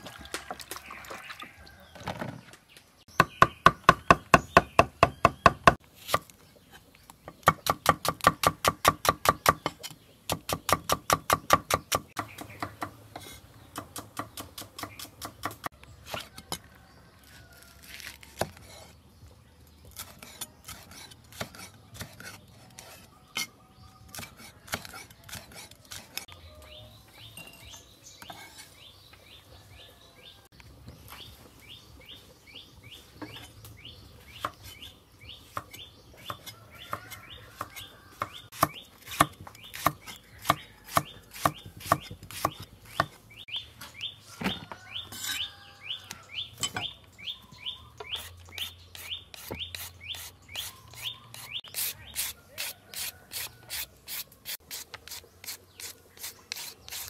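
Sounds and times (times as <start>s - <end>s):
bird chirping: 0.8s - 16.2s, 26.3s - 53.8s.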